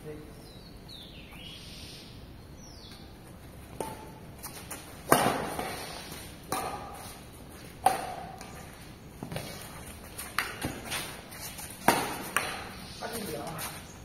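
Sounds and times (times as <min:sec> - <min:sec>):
racket hitting shuttlecock: 0:03.7 - 0:08.6, 0:10.2 - 0:12.8.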